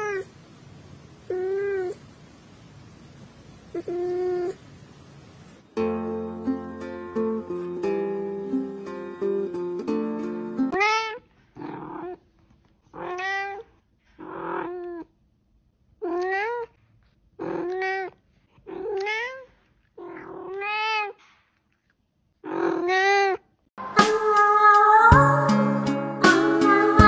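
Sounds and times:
cat meowing: 1.3s - 2.0s, 3.7s - 4.6s, 10.8s - 12.2s, 12.9s - 15.1s, 16.0s - 16.8s, 17.4s - 21.2s
guitar music: 5.8s - 10.8s, 25.1s - 27.0s.

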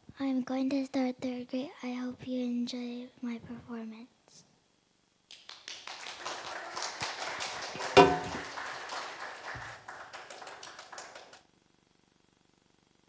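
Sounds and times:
audience clapping: 5.3s - 11.4s.

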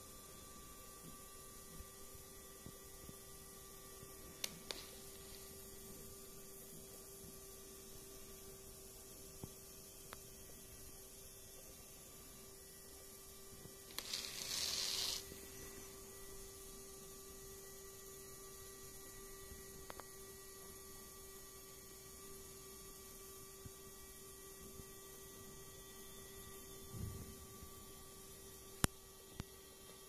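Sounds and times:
small electric motor humming: 0.0s - 26.8s
hissing rustle: 13.9s - 15.6s.

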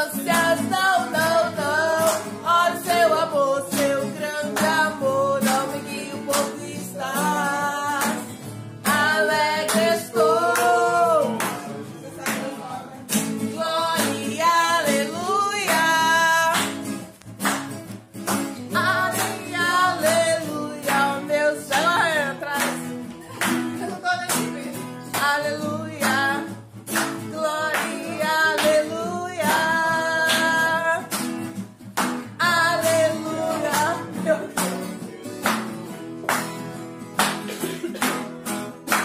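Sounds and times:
person singing: 0.0s - 11.9s, 13.4s - 16.8s, 18.7s - 31.2s, 32.3s - 35.5s
acoustic guitar strumming: 0.0s - 39.0s.

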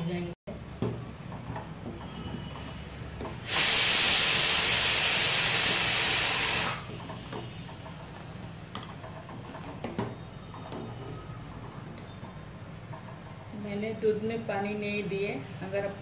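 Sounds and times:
pressure cooker whistle hissing: 3.4s - 6.9s.

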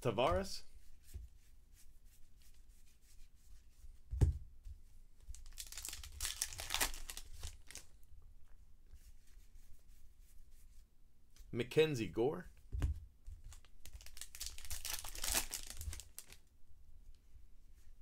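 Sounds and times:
thump on table: 4.1s - 4.4s.

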